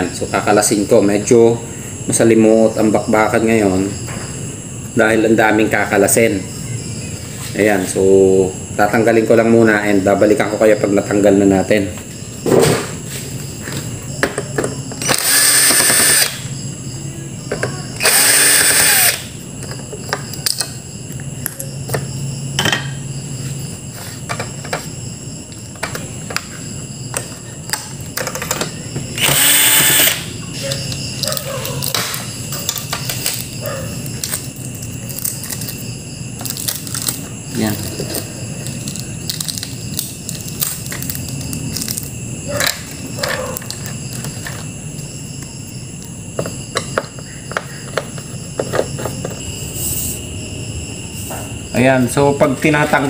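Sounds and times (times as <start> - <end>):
cordless drill running: 15.0 - 16.4, 18.0 - 19.3, 29.2 - 30.3.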